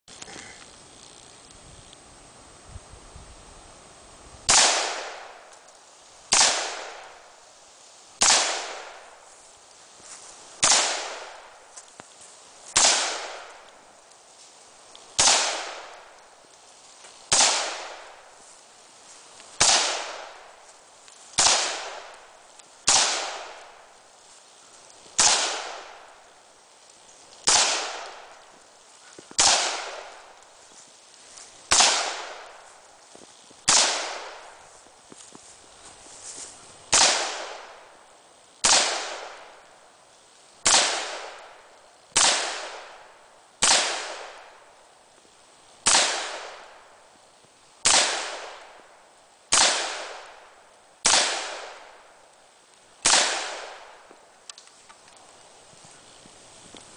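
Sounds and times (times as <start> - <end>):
rifle shots echoing: 4.5 - 5.5, 6.3 - 7.4, 8.2 - 9.2, 10.6 - 11.6, 12.8 - 13.8, 15.2 - 16.2, 17.3 - 18.4, 19.5 - 20.6, 21.4 - 24.0, 25.2 - 26.3, 27.4 - 28.5, 29.4 - 30.4, 31.7 - 32.8, 33.7 - 34.6, 36.9 - 38.0, 38.6 - 39.6, 40.6 - 41.6, 42.2 - 44.6, 45.9 - 46.9, 47.8 - 48.8, 49.5 - 52.1, 53.0 - 54.0.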